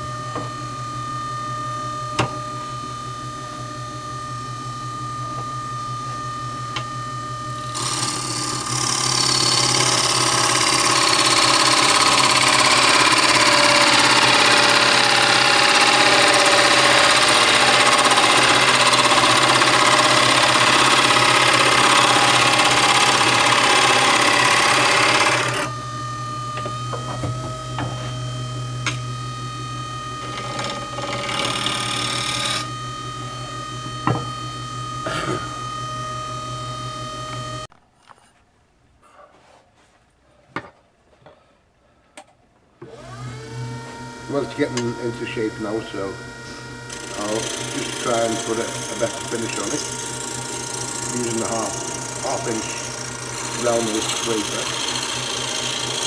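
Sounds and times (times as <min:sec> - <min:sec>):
gouge cutting wood: 0:07.6 - 0:25.7, 0:30.2 - 0:32.6, 0:46.9 - 0:56.0
wood lathe humming: 0:07.6 - 0:37.7, 0:42.8 - 0:56.0.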